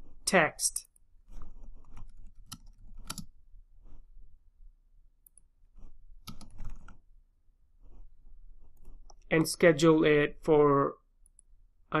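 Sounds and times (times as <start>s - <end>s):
keyboard keys clicking: 2.2s - 3.3s.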